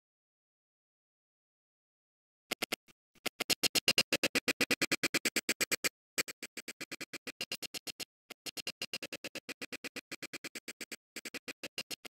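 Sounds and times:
stuttering soundtrack snippets: 0:02.5 - 0:12.0.

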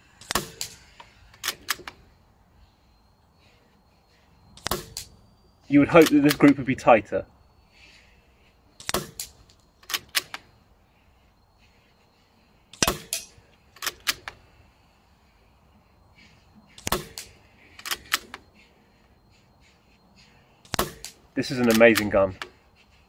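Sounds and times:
air rifle shots: 0:00.2 - 0:01.9, 0:04.6 - 0:05.1, 0:08.8 - 0:10.4, 0:12.8 - 0:14.2, 0:16.8 - 0:18.3, 0:20.7 - 0:22.1.

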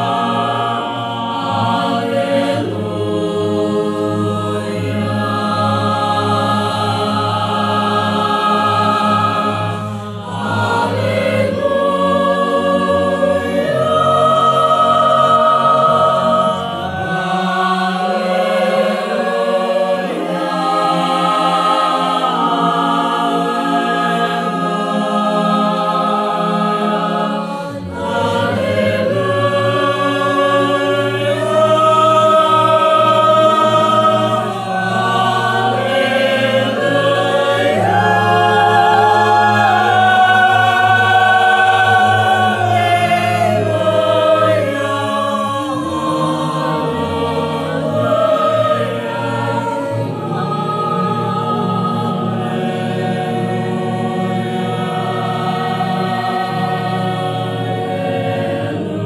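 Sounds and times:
choir singing in harmony: 0:00.0 - 0:59.0.

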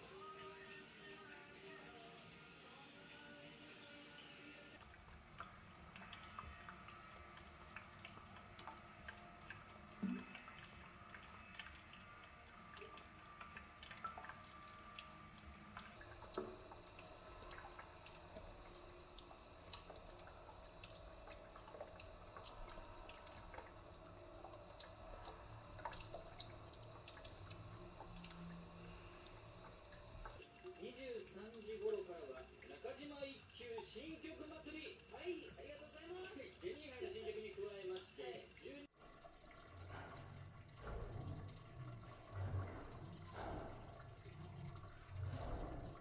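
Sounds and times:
cat lapping water: 0:00.0 - 0:16.2, 0:19.2 - 0:28.6, 0:30.3 - 0:38.9
water trickling into basin: 0:00.0 - 0:46.0.

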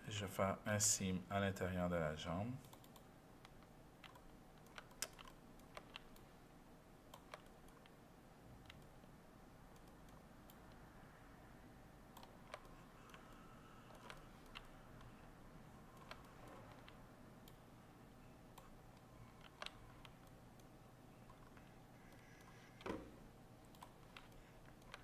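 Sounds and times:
faint background hum: 0:00.0 - 0:25.0
mouse and keyboard clicks: 0:02.6 - 0:06.2, 0:07.1 - 0:08.0, 0:08.6 - 0:09.0, 0:12.1 - 0:15.2, 0:15.9 - 0:17.6, 0:18.5 - 0:25.0.

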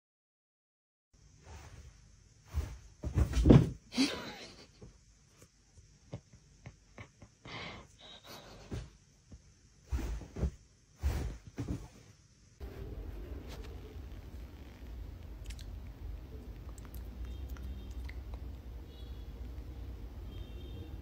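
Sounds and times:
cat thumping on bed: 0:02.6 - 0:03.8.

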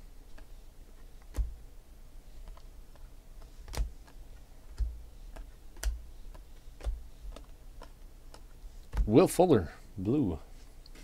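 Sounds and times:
cards clicking while flipped: 0:00.3 - 0:01.6, 0:02.4 - 0:09.2.

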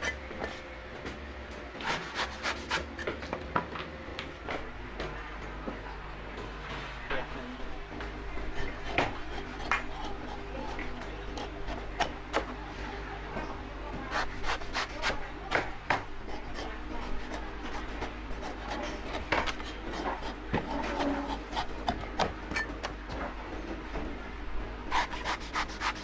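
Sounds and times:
steady low hum: 0:00.0 - 0:26.0
cleaver chopping coconut: 0:08.4 - 0:12.5, 0:14.1 - 0:22.9.

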